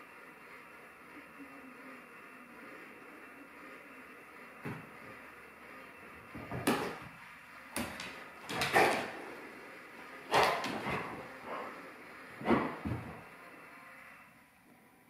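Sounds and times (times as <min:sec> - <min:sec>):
dog paws thumping on floor: 0:04.6 - 0:05.0, 0:06.2 - 0:09.2, 0:10.3 - 0:11.4, 0:12.4 - 0:13.3.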